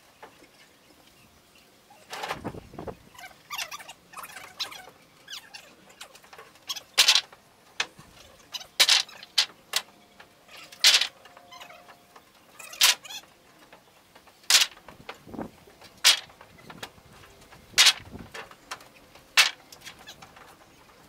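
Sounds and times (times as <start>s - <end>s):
wooden boards knocking: 7.0s - 7.9s, 8.8s - 9.9s, 10.8s - 11.1s, 14.5s - 15.0s, 16.0s - 16.8s, 17.8s - 18.3s, 19.4s - 20.0s.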